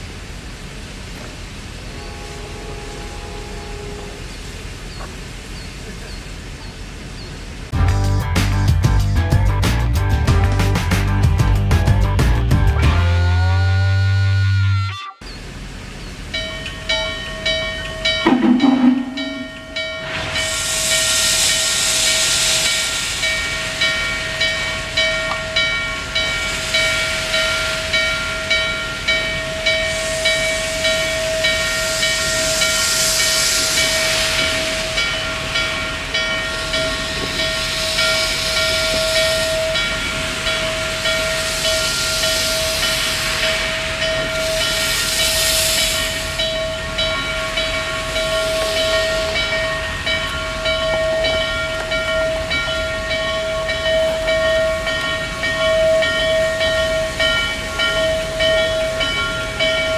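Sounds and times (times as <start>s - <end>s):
steam locomotive hissing: 15.4s - 59.9s.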